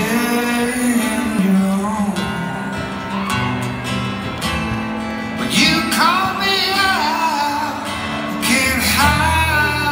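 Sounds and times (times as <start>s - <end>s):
acoustic guitar: 0.0s - 9.9s.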